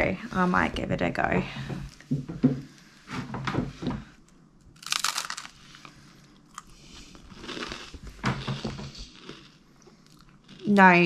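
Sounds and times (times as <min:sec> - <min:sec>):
person chewing quietly: 0:04.3 - 0:10.9
person biting crunchy food: 0:04.8 - 0:10.7.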